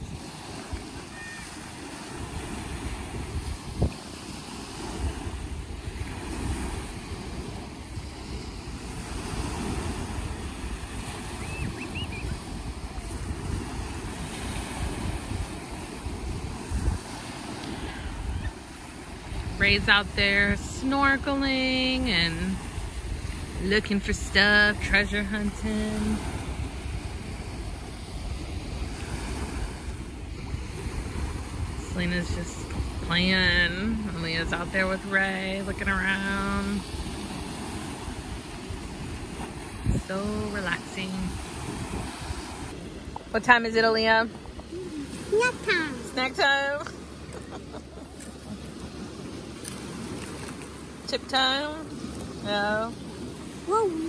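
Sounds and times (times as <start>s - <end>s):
small waves breaking on shore: 0.0s - 54.0s
wind rumbling on microphone: 0.0s - 54.0s.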